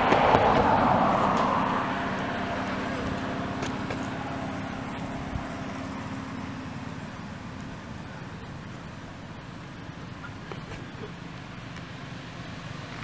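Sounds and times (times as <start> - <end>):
vehicle passing by: 0.0 - 13.0.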